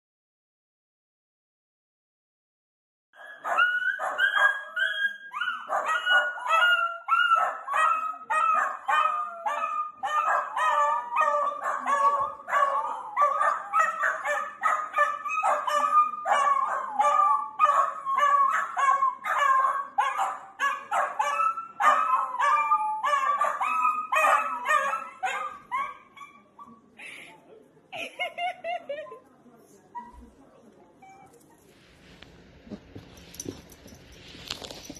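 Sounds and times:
small dogs barking rapidly: 3.2 - 26.1.

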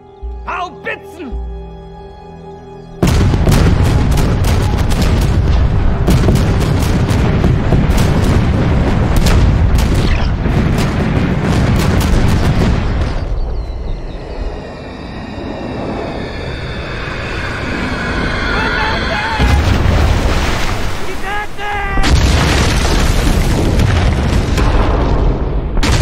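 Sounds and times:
artillery blasts: 3.0 - 14.0, 22.0 - 26.0
low rumble: 3.0 - 20.9.

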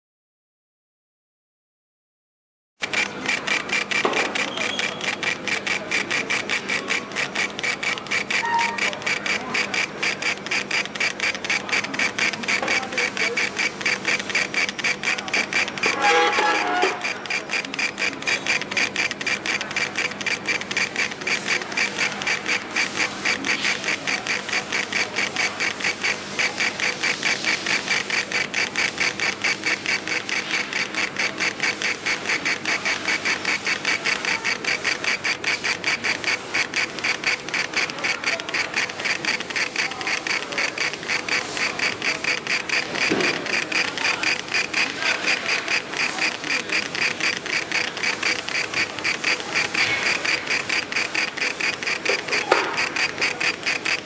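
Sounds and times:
laser engraver motors whirring: 2.8 - 54.0.

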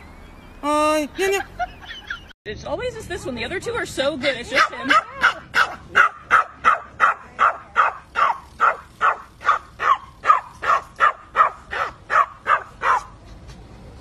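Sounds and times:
small dog yipping: 4.6 - 13.2.

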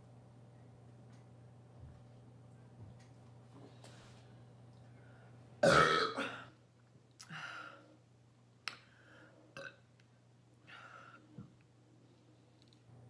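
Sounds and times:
woman burping: 5.6 - 6.5, 9.6 - 9.8.

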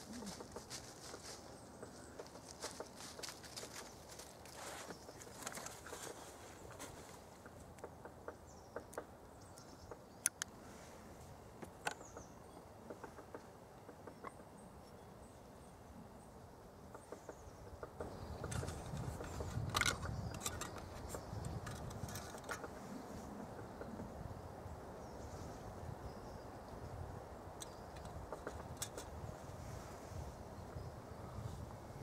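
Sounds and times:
rustling and handling noises: 0.0 - 7.3
small clicks and knocks of handling: 10.2 - 10.5, 18.0 - 22.7, 27.6 - 29.2.

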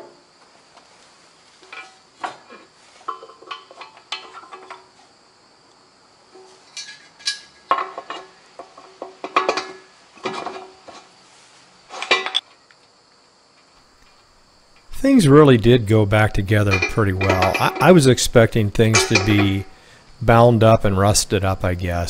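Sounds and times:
metal pin clinking and clanking: 6.7 - 10.7, 16.6 - 18.0, 18.7 - 19.8.

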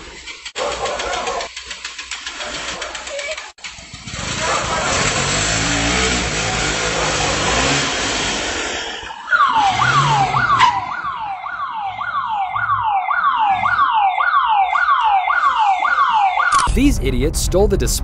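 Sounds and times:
street noise rush: 0.0 - 12.8, 16.6 - 18.0
electronic siren falling tone: 9.1 - 17.8.

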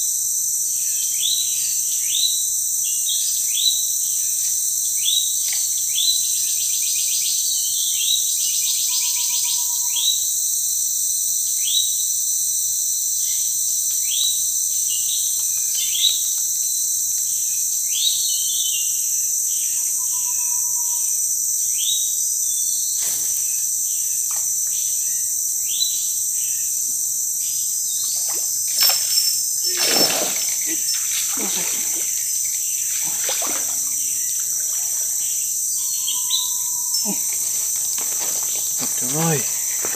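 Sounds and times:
insect chorus drone: 0.0 - 39.9.

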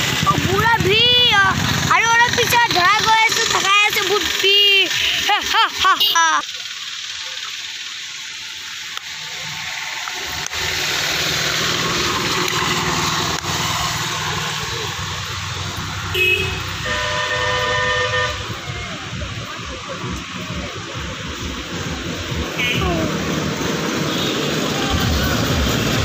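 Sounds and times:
road traffic passing: 0.0 - 26.0
vehicle horn beeping: 16.1 - 18.6, 22.6 - 23.0, 24.1 - 24.7.

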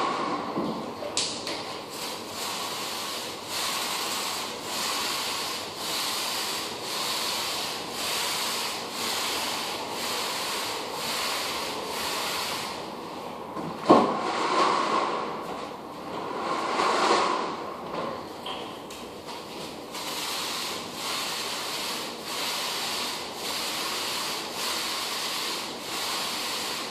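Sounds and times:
rubbing strokes on wooden floor: 2.0 - 12.8, 19.6 - 26.9.

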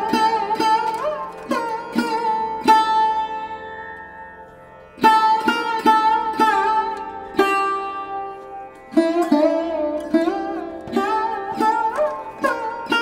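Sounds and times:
plucked string instrument music: 0.0 - 13.0.

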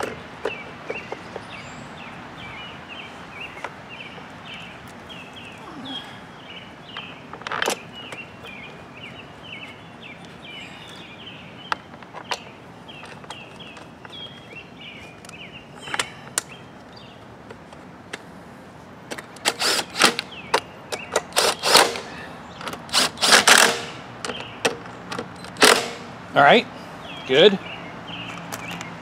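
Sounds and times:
cordless impact driver bursts: 19.4 - 20.2, 21.3 - 22.1, 22.9 - 24.0, 25.6 - 26.1.

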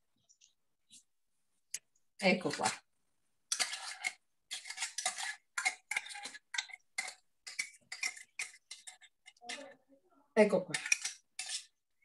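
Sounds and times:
spoon scraping steel pan: 3.5 - 9.8, 10.4 - 11.8.

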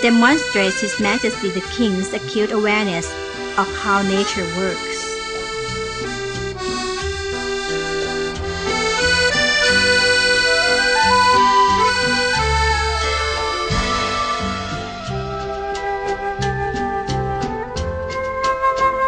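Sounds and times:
instrumental background music: 0.0 - 19.0.

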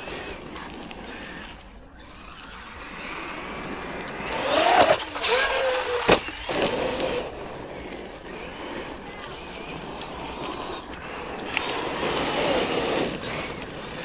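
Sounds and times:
toy truck electric motor whining: 0.0 - 14.0
tyres throwing gravel: 0.0 - 14.0.

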